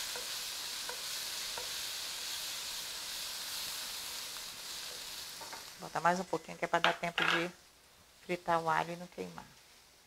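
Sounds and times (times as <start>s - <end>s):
spatula tapping pan: 0.0s - 1.9s
garlic sizzling in oil: 0.0s - 10.0s.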